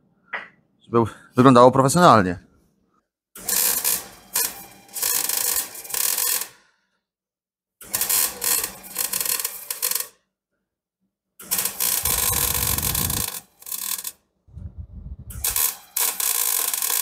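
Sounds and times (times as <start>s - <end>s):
welder arc crackling: 11.5s - 14.1s, 15.3s - 17.0s.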